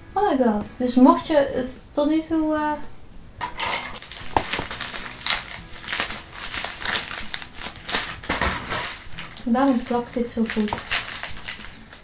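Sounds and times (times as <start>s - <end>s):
wrapping paper crumpling: 3.6s - 12.0s.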